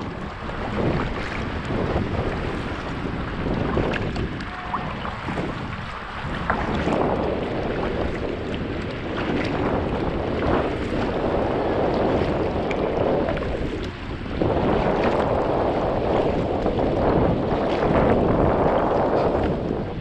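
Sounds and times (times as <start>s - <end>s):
paddle strokes splashing: 0.0s - 20.0s
wind rumbling on microphone: 0.0s - 20.0s.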